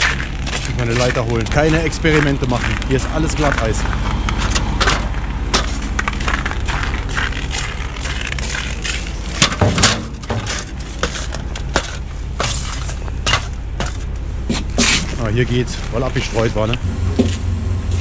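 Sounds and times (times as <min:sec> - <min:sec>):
boots crunching on icy ground: 0:00.0 - 0:18.0
low rumble: 0:00.0 - 0:18.0
metal ladder clattering: 0:08.0 - 0:15.2.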